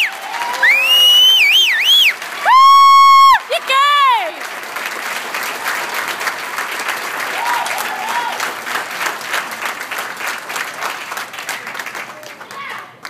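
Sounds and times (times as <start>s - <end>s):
crowd applauding: 0.0s - 13.0s
person whooping: 0.3s - 4.3s, 7.4s - 8.4s.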